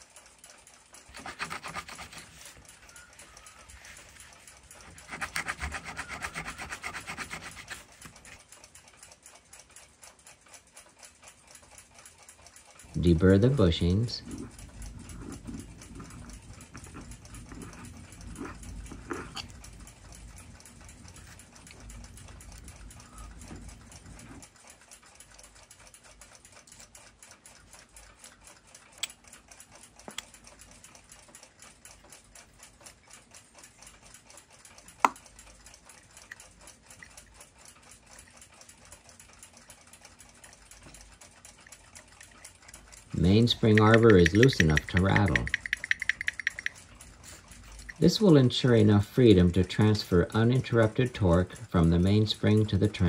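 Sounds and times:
deburring tool scraping brass: 4.8 - 7.8
light ticking: 8.5 - 53.0
small clicks: 34.6 - 48.0.

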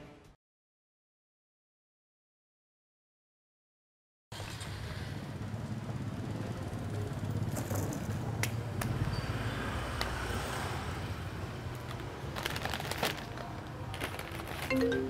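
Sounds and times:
street traffic rumble: 4.4 - 15.0
plastic bags crinkling: 11.7 - 15.0.

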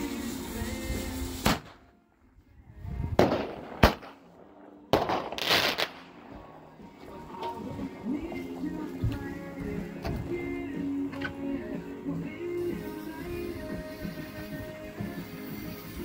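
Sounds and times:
firework hiss: 0.0 - 1.9, 5.0 - 6.9, 12.1 - 16.0
firework bangs: 1.1 - 1.9, 3.1 - 6.9.

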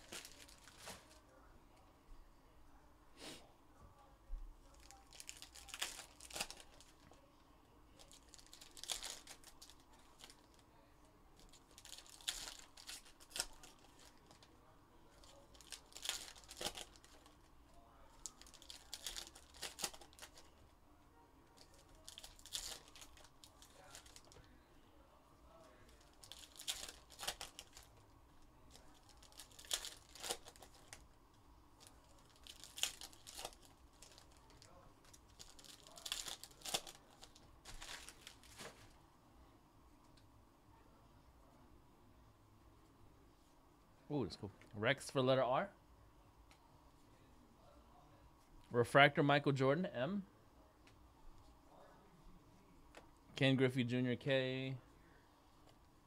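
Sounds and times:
foil packs tearing and crinkling: 0.0 - 1.0, 4.8 - 6.9, 8.1 - 10.4, 11.6 - 14.3, 15.5 - 17.3, 18.2 - 20.5, 21.7 - 24.4, 26.0 - 27.9, 29.0 - 31.0, 32.2 - 34.6, 35.2 - 38.8.

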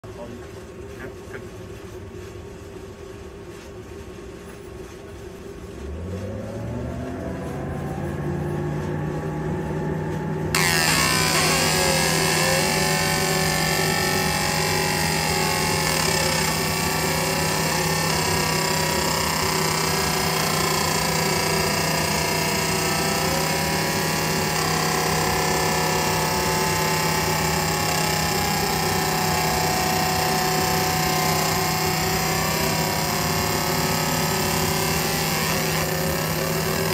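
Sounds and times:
fan humming: 0.0 - 36.9.

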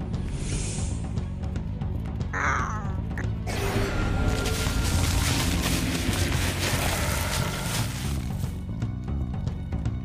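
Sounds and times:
cartoon background music: 0.1 - 10.0
leafy bush rustling: 4.0 - 8.7.

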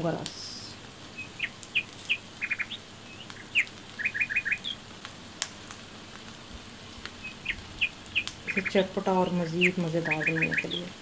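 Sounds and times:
small bird chirping: 1.1 - 4.8, 7.1 - 11.0.

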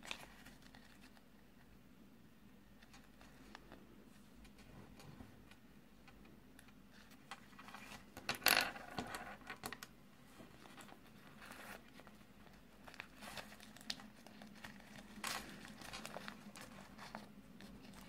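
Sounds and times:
wrapper crinkling and tearing: 12.9 - 18.0.

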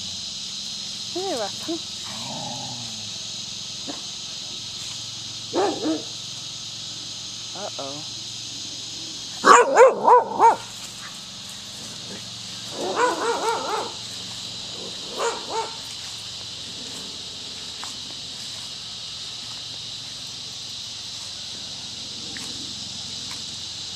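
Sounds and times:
cicadas buzzing: 0.0 - 23.9
dog barking: 5.5 - 6.1, 9.4 - 10.7, 12.1 - 14.0, 15.0 - 15.8.

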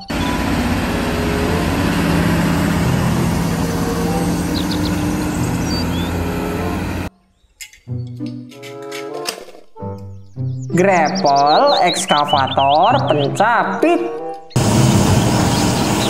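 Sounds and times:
diesel machinery droning: 0.0 - 7.1, 14.6 - 16.0.

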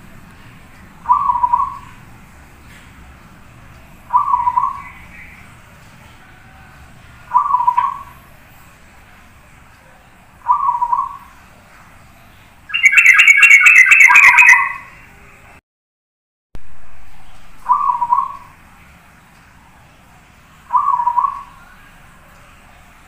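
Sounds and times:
dove cooing: 1.0 - 2.0, 4.1 - 5.1, 7.3 - 8.2, 10.4 - 11.3, 12.7 - 15.0, 17.7 - 18.5, 20.7 - 21.5.

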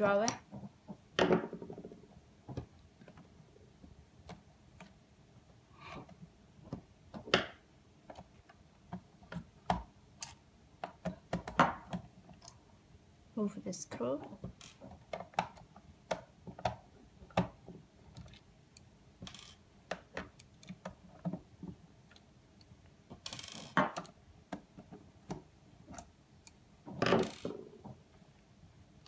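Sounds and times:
small screws set on wooden table: 19.3 - 19.6, 27.0 - 27.6.

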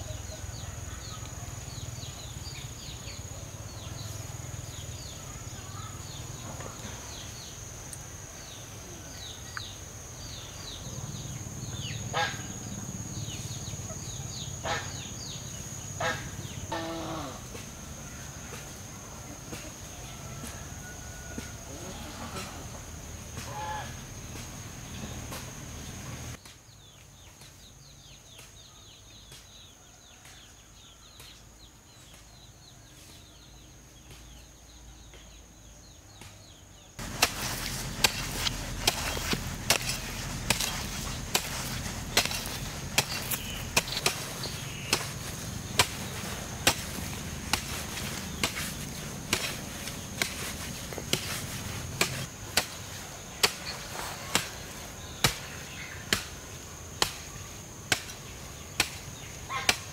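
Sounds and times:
high insect trill: 0.0 - 26.4, 37.0 - 59.9
chopping strikes: 37.0 - 54.6, 55.2 - 56.4, 57.0 - 57.3, 57.9 - 59.9.

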